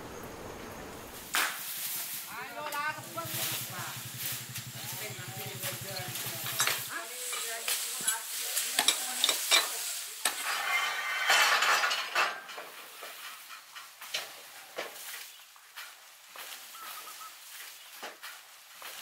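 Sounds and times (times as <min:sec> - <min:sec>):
rough scraping: 0:01.1 - 0:12.1
hand tools clicking on steel rails: 0:02.6 - 0:10.6.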